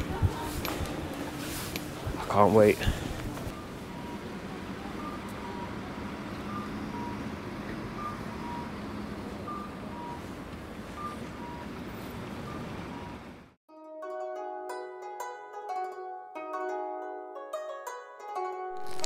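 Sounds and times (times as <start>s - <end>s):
bus engine running: 0.0s - 13.6s
street traffic hum: 0.0s - 13.6s.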